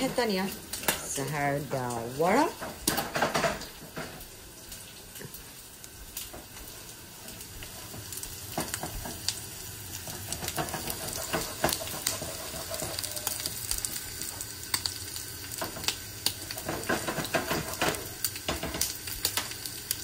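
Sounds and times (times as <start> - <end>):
sauce bubbling and sizzling: 0.0 - 20.0
spatula scraping and tapping pan: 7.6 - 14.0, 15.6 - 19.6.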